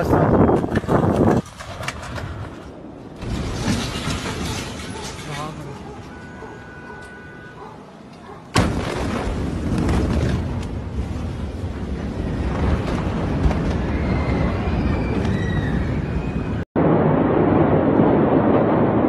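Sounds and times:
rushing rumbling blast noise: 8.6 - 19.0
explosion boom: 16.8 - 19.0.

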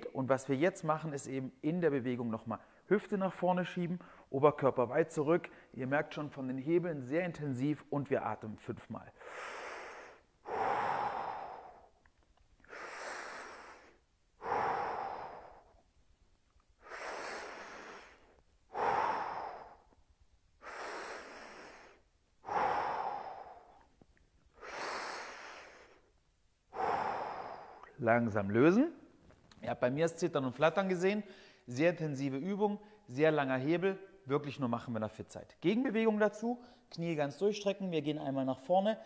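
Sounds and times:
man breathing deeply: 9.2 - 15.9, 16.8 - 28.0, 31.3 - 31.7.

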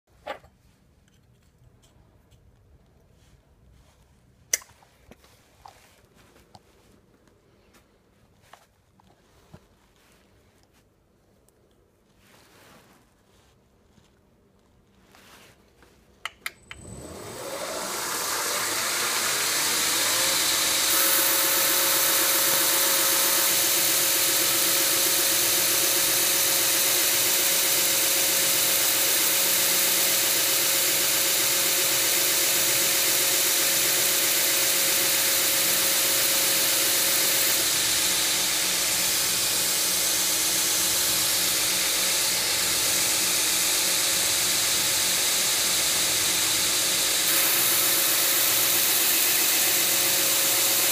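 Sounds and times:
belt grinder motor whine: 16.6 - 50.9
steel grinding hiss: 18.5 - 28.6.

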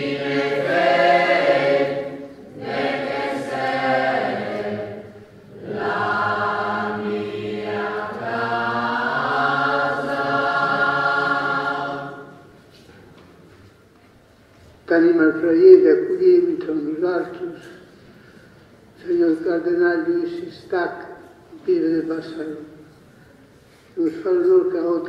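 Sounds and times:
choir singing a hymn: 0.0 - 12.6.

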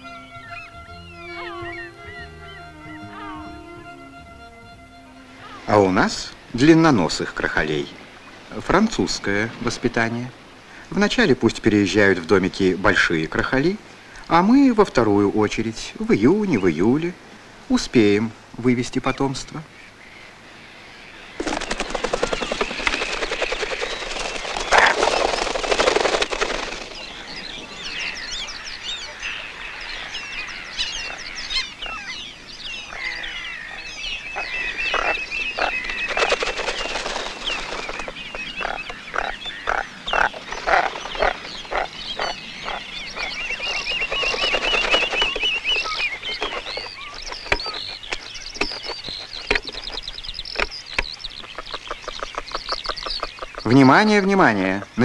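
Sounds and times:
high bird chirps: 0.0 - 6.6, 21.4 - 54.0
short sharp bird calls: 0.0 - 6.6, 32.8 - 53.7
sustained high bird trills: 0.0 - 8.5, 19.9 - 54.0.

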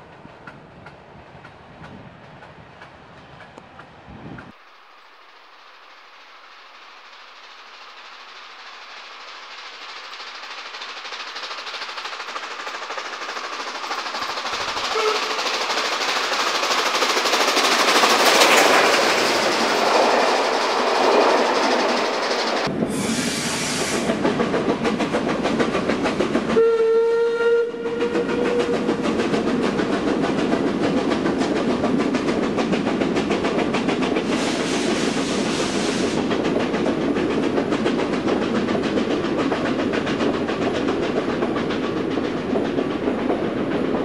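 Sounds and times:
steam hiss: 4.5 - 26.7, 27.9 - 44.0
train wheels clattering over rail joints: 7.1 - 22.7, 23.5 - 26.6, 28.0 - 44.0
steam whistle blast: 14.9 - 15.4, 22.9 - 24.1, 26.6 - 28.8.

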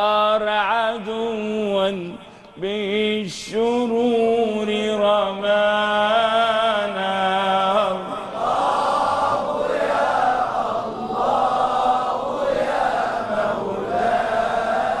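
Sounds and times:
group chanting: 6.9 - 15.0.

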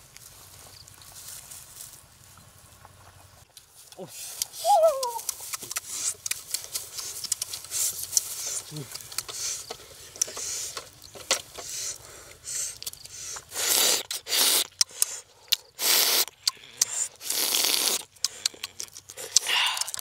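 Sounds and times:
eggshell cracking and peeling: 12.6 - 20.0.

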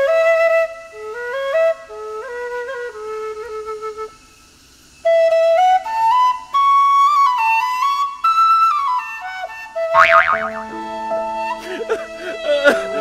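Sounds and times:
bamboo flute melody: 0.0 - 13.0.

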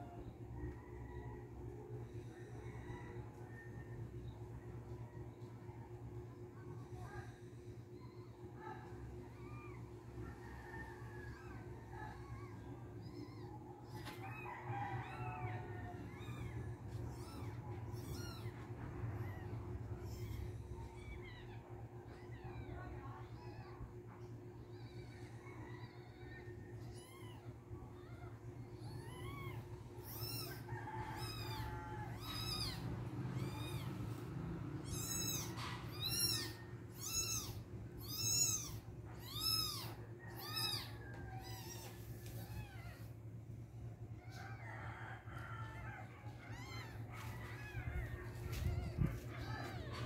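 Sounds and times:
kitten mewing: 28.8 - 34.2, 34.8 - 43.1.

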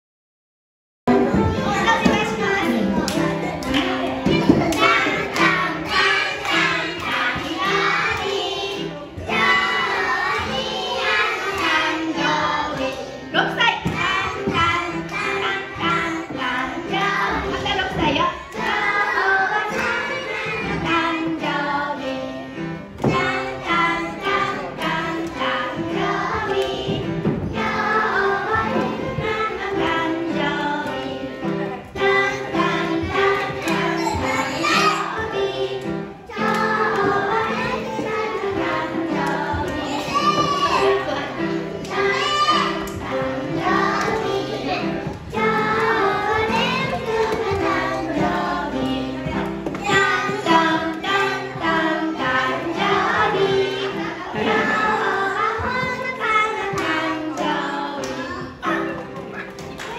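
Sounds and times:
children singing: 1.1 - 59.9.

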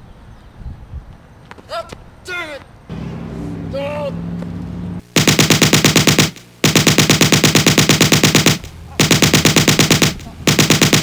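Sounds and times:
machine-gun fire bursts: 5.1 - 11.0.

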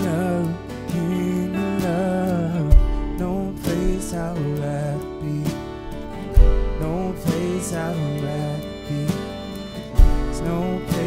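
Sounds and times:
acoustic guitar strumming: 0.0 - 11.0
worship song music: 0.0 - 11.0
deep bass hit: 2.7 - 3.4, 6.3 - 7.0.

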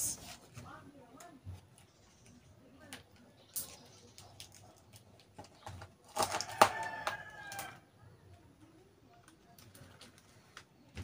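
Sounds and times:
paper crackling and rustling: 3.8 - 7.8.

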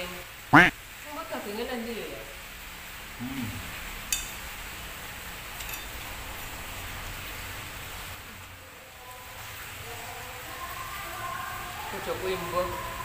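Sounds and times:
background hiss: 0.0 - 12.6
spoon clinking on plate: 5.6 - 6.6.

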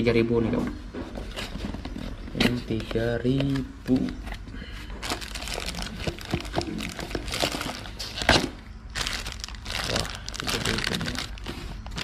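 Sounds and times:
plastic bag crinkling: 5.0 - 12.0.

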